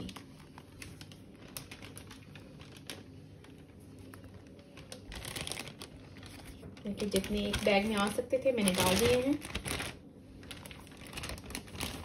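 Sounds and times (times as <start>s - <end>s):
plastic zip-lock bag rustle: 0.0s - 12.0s.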